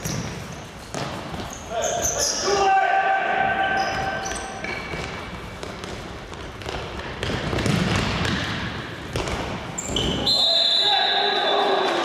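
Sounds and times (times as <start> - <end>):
echoing court noise: 0.0 - 12.0
ball kicked and thudding on floor: 6.6 - 8.5.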